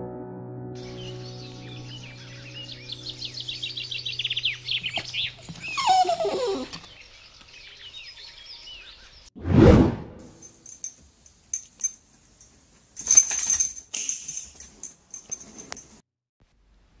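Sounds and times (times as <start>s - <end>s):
small birds chirping: 0.8s - 9.3s.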